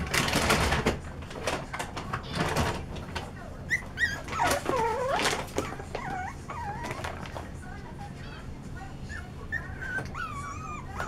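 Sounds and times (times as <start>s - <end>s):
puppies whining and yipping: 3.6s - 7.4s, 8.2s - 11.0s.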